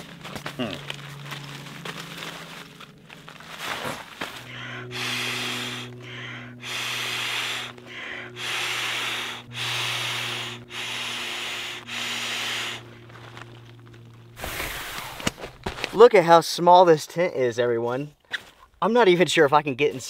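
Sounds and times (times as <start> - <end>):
low hum: 0.0 - 16.0
rasping rubbing strokes: 3.3 - 15.5.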